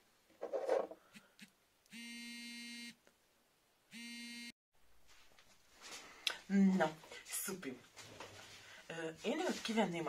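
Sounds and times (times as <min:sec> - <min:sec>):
low buzzy electronic beeps: 0:04.0 - 0:04.5.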